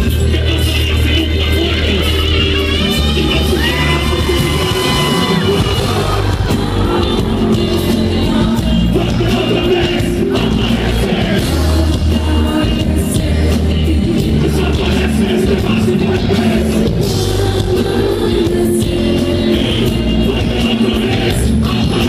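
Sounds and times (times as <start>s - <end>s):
man rapping and shouting: 0.0s - 6.2s, 14.2s - 16.9s
hip-hop band playing: 0.0s - 22.0s
pulsing bass beat and drums: 0.0s - 22.0s.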